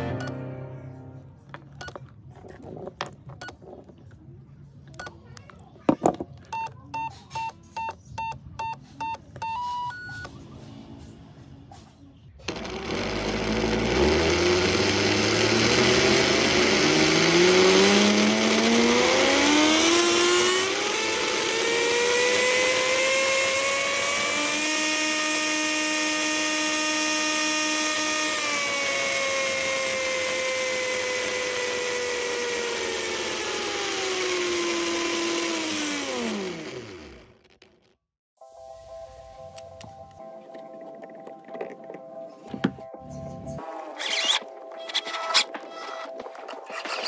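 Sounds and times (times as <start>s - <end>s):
electric motor whine: 12.4s - 37.7s, 43.9s - 47.0s.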